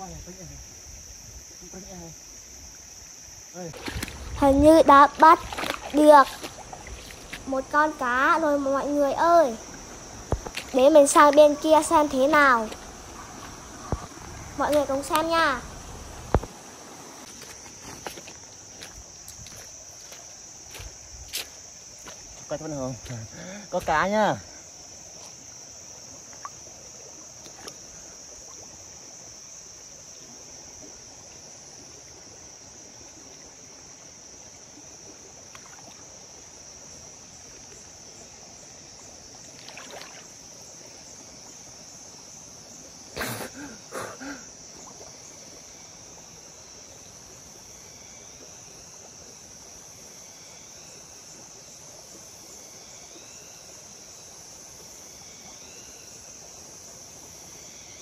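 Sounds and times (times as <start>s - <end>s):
insects droning: 0.0s - 58.0s
stream flowing: 0.6s - 58.0s
splashes in water: 3.6s - 16.6s, 27.3s - 27.9s, 35.4s - 36.2s, 39.4s - 40.4s.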